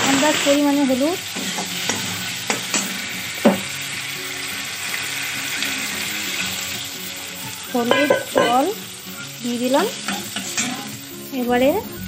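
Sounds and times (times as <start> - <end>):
spices sizzling in hot oil: 0.0 - 12.0
spatula knocking on pan: 1.3 - 3.7, 7.8 - 8.8
metal spatula scraping: 10.0 - 10.9.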